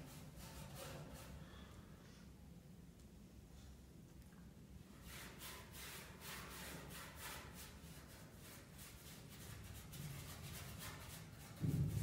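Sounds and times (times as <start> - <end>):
paintbrush scratchy swishes: 0.0 - 1.4, 5.0 - 12.0.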